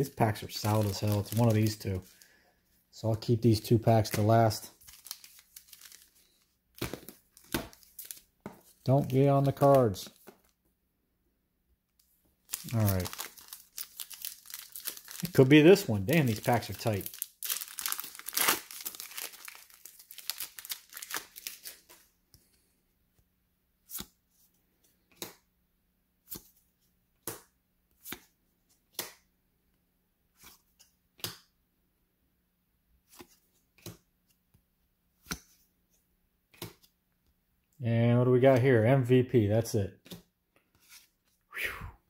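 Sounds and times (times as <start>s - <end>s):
foil wrapper tearing and crinkling: 0.5s - 2.3s, 4.1s - 8.2s, 12.5s - 21.9s.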